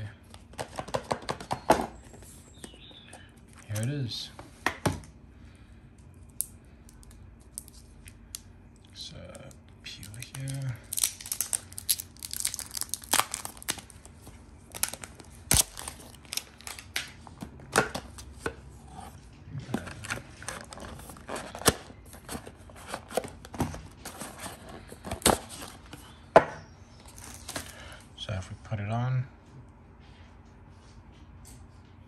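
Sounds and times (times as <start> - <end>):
plastic film peeling and crackling: 9.4 - 17.4
cardboard packaging rustling: 10.3 - 26.1, 26.9 - 27.8.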